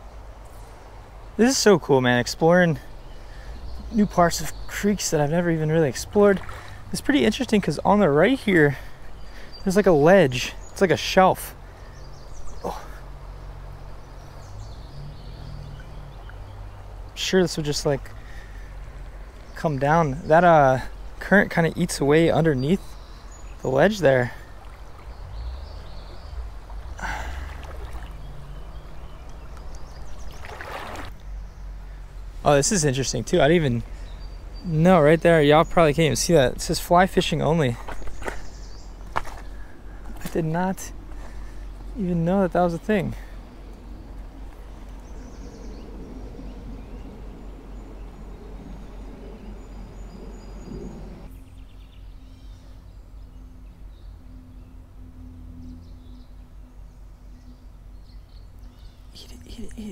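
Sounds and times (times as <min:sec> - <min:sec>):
creek water rushing: 0:00.0 - 0:51.3
small bird chirping trills: 0:00.0 - 0:59.9
water splashing around wading legs: 0:06.3 - 0:06.9, 0:24.4 - 0:31.2
steady low hum: 0:11.6 - 0:59.9
steady low rumble: 0:13.2 - 0:30.4, 0:31.1 - 0:59.9
louder water splash: 0:26.7 - 0:28.3, 0:30.2 - 0:31.2.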